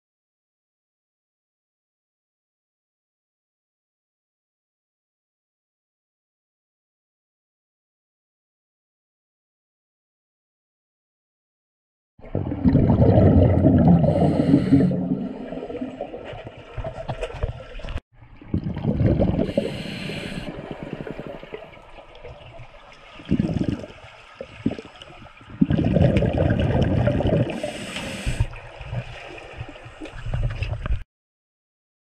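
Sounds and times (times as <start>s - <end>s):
underwater exhalation bubbles: 12.2s - 16.6s, 18.4s - 22.4s, 23.2s - 29.2s.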